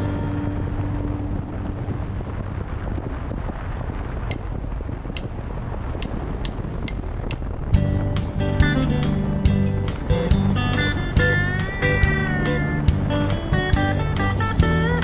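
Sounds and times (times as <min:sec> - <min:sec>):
motorcycle road noise: 0:00.0 - 0:15.0
wind rushing over microphone: 0:00.0 - 0:15.0
light ticks: 0:05.1 - 0:05.3.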